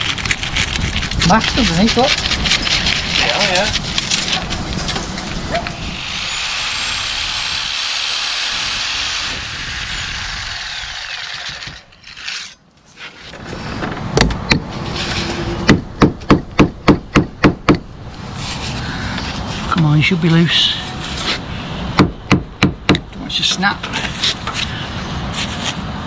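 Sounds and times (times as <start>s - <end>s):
power tool whining: 5.7s - 12.0s.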